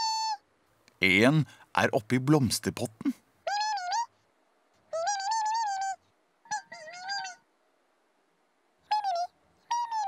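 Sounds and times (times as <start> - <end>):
cartoon birds warbling calls: 0.0 - 0.4, 3.4 - 4.1, 4.9 - 7.5, 8.9 - 10.0.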